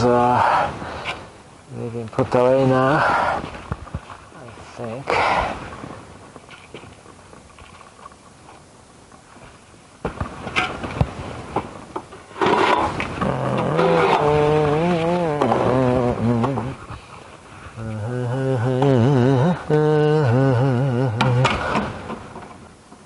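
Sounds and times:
man humming: 13.1 - 17.1, 17.7 - 21.9.

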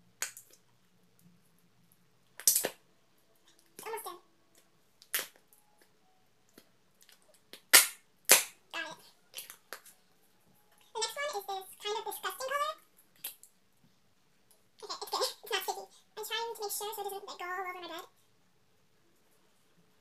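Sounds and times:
slime popping and snapping: 2.4 - 2.8, 5.0 - 5.4, 7.0 - 8.6.

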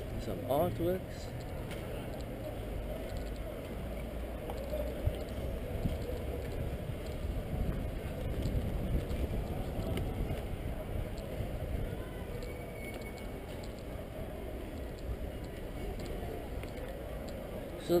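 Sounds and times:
low city rumble: 0.0 - 18.0
wind on microphone: 5.0 - 12.8.

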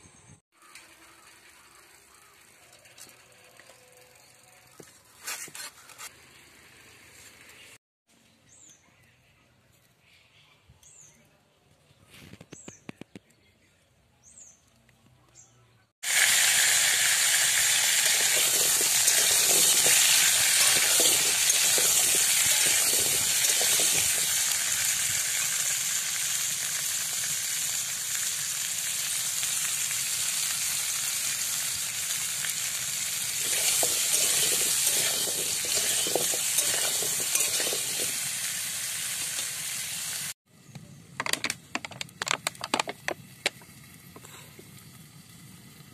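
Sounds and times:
potatoes sizzling in oil: 0.6 - 4.8, 16.0 - 40.4, 42.5 - 45.9.

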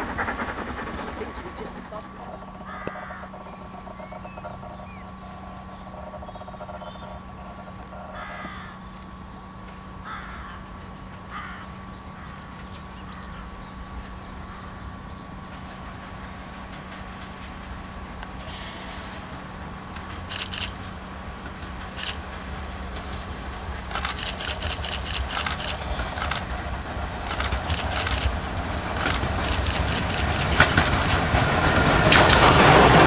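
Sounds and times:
harsh bird calls: 0.1 - 10.7, 23.0 - 31.1.

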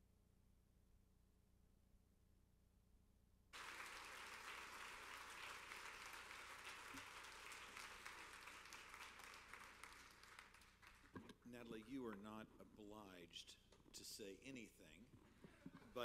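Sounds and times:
audience applause: 3.6 - 11.2.

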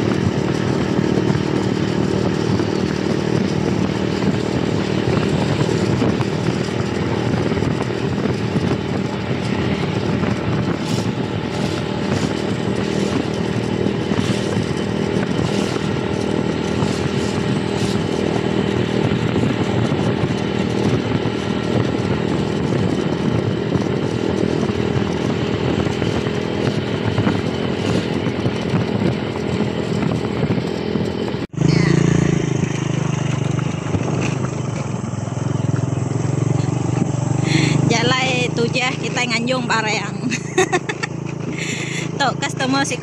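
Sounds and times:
motorcycle engine running: 0.0 - 43.0
wind and road noise: 0.0 - 43.0.

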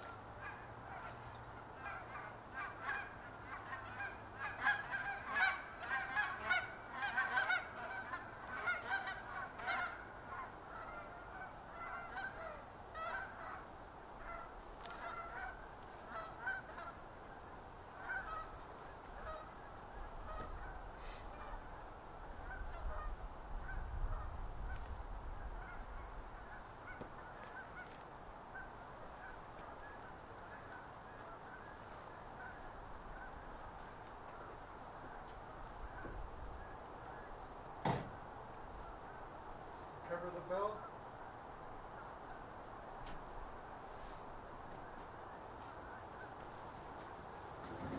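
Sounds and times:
geese honking: 0.0 - 37.5.

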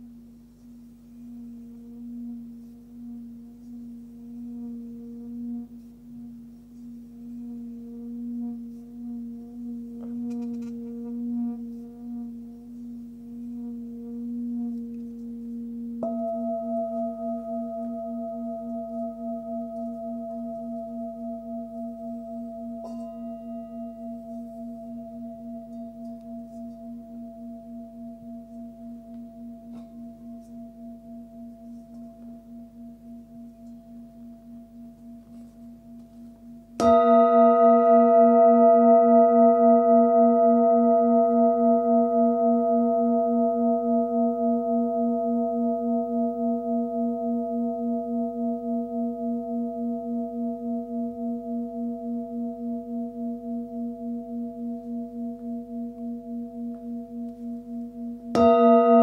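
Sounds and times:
singing bowl ringing: 13.0 - 59.0
mallet striking singing bowl: 16.0 - 21.0, 22.7 - 24.2.

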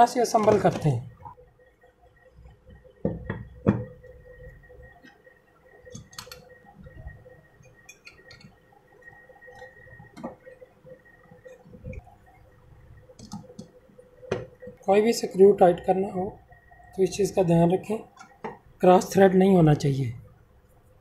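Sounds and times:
knocks on wooden bench: 3.0 - 3.9.

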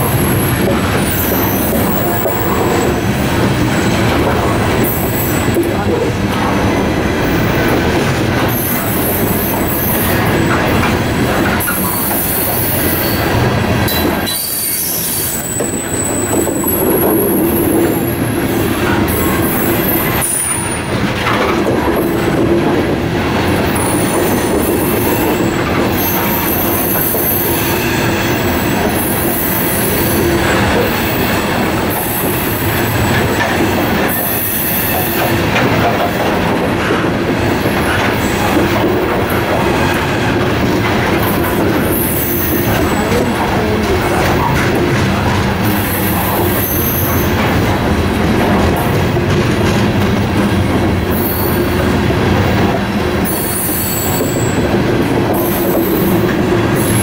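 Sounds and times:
train wheels rumbling on rails: 0.0 - 57.0
high-pitched wheel squeals: 11.6 - 18.1.

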